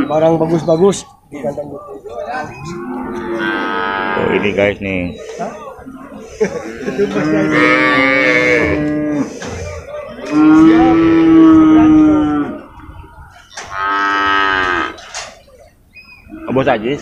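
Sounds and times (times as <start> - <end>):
cattle mooing: 2.4 - 4.6, 6.5 - 9.6, 10.2 - 15.0.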